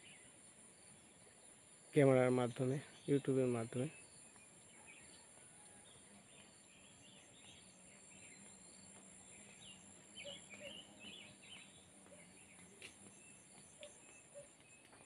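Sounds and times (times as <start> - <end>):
small bird chirps: 0.0 - 15.0.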